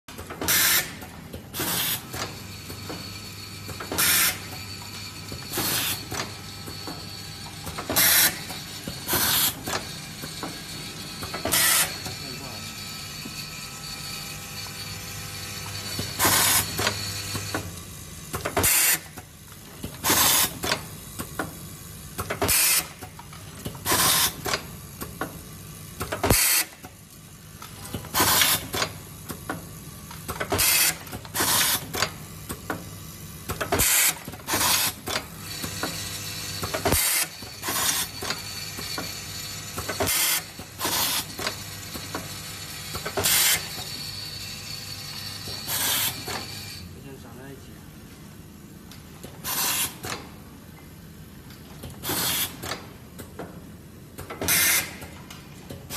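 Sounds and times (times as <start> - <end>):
pneumatic air hisses: 0.5 - 1.0, 1.6 - 2.2, 4.0 - 4.6, 23.9 - 24.5, 45.6 - 46.4, 49.4 - 50.1, 52.0 - 52.7, 54.4 - 55.1.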